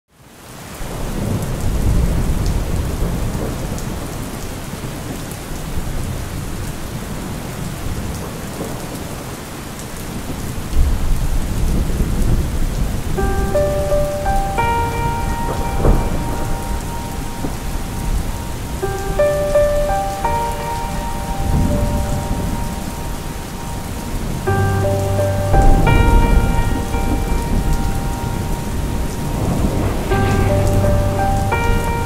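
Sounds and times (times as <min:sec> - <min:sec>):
heavy rain: 0:00.1 - 0:32.0
low rolling thunder: 0:00.9 - 0:09.0, 0:10.3 - 0:32.0
soft musical notes: 0:13.2 - 0:32.0.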